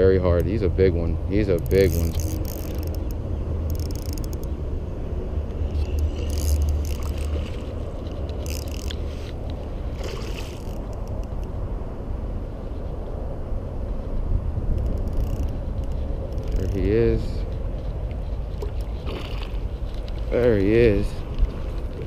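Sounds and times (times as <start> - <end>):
steady low rumble: 0.0 - 22.0
fishing reel winding: 1.5 - 4.5, 5.8 - 7.5, 8.4 - 9.0, 14.8 - 15.6, 16.3 - 16.8.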